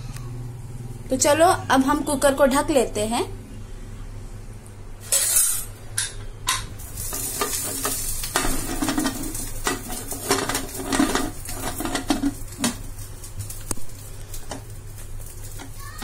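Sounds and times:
metal lid scraping and clinking: 5.0s - 12.9s.

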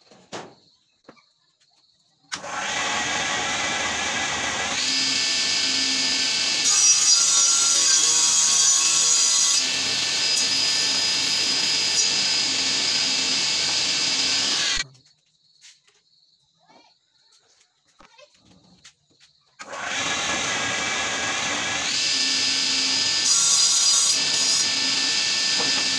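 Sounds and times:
table saw cutting panel: 2.3s - 14.8s, 19.6s - 25.9s.

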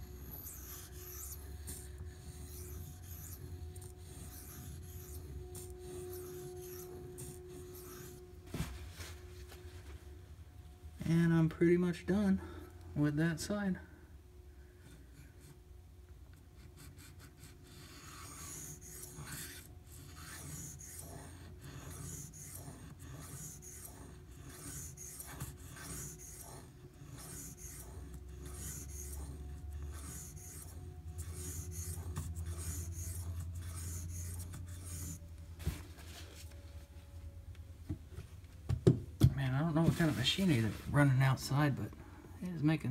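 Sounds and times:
knife blade scraping on whetstone: 0.0s - 8.3s, 17.7s - 35.3s
low machinery hum: 0.0s - 42.9s.

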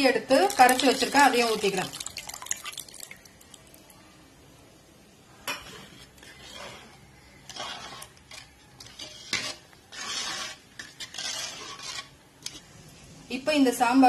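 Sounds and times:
ladle scraping metal pot: 0.4s - 2.6s, 5.5s - 12.8s.

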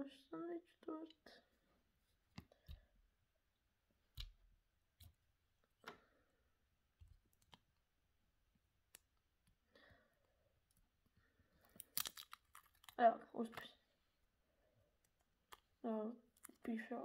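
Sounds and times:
faint clicks and taps of plastic: 2.3s - 3.0s.

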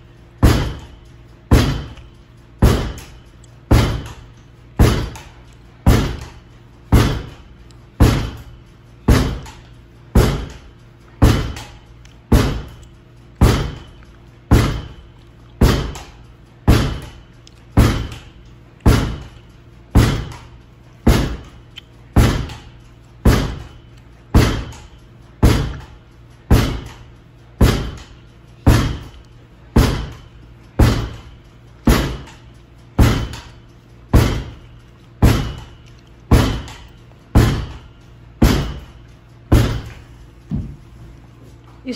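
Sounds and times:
ball thudding against a wall: 34.1s - 34.6s.

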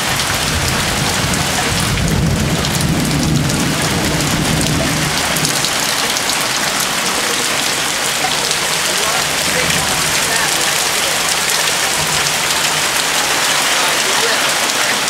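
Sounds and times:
heavy rain falling: 0.0s - 15.0s
low rumble of thunder: 0.2s - 6.6s.

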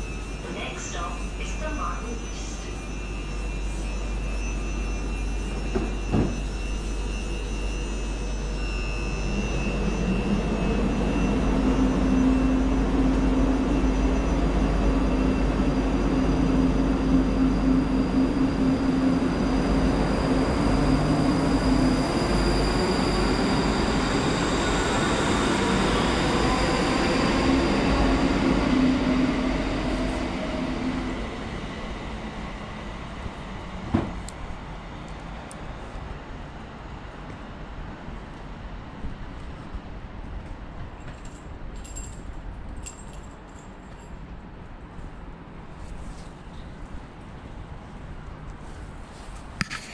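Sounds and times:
train motors whining: 0.0s - 32.6s.

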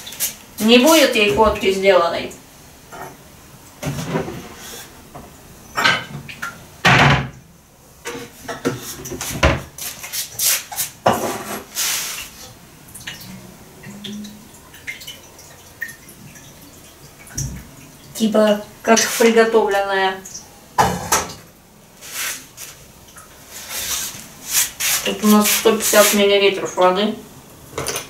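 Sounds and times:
running water: 0.0s - 7.4s, 8.0s - 28.0s
kitchenware clinking and knocking: 5.8s - 7.4s, 20.8s - 21.4s.

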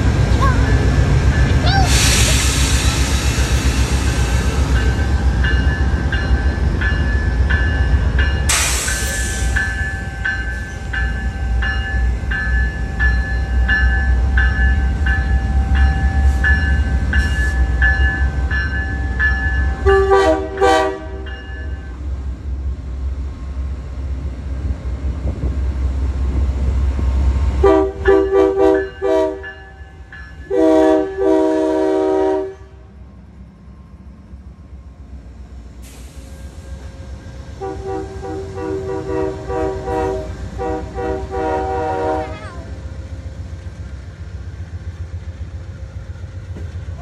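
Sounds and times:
diesel locomotives rumbling past: 0.0s - 47.0s
train air horn blasts: 19.8s - 21.3s, 27.6s - 29.6s, 30.5s - 32.9s, 37.6s - 42.5s.

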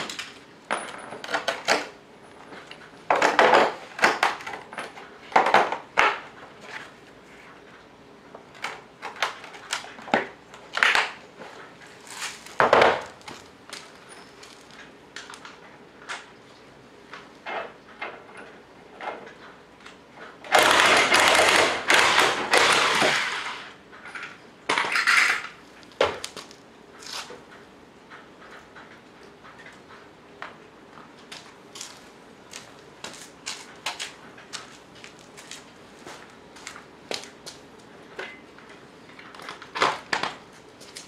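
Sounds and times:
impact wrench bursts: 20.5s - 23.7s.

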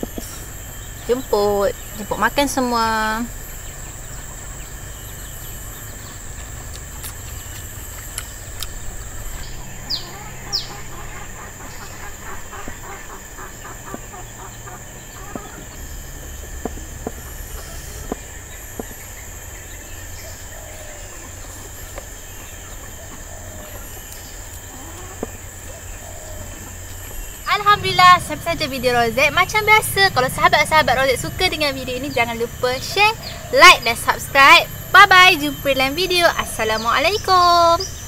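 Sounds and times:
high insect drone: 0.0s - 38.0s
chicken clucking: 9.3s - 15.8s, 24.7s - 25.4s.

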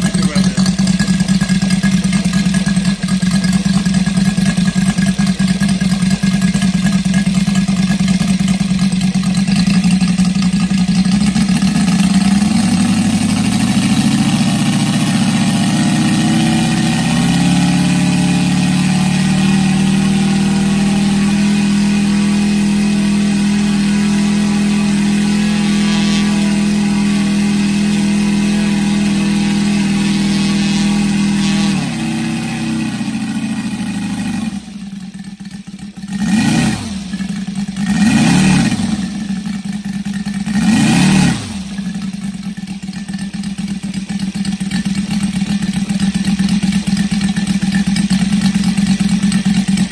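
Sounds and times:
model aircraft engine running: 0.0s - 49.9s.

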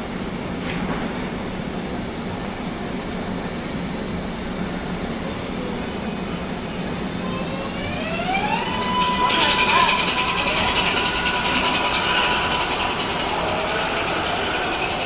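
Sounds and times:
train equipment hum: 0.0s - 15.0s
electric train motor whine: 6.2s - 15.0s.

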